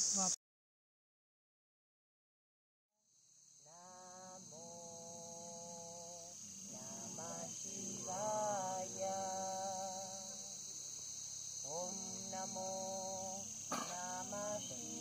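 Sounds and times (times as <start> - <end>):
steady high-pitched hiss: 0.0 - 0.4, 3.0 - 15.0
person singing long held notes: 3.7 - 10.7, 11.6 - 15.0.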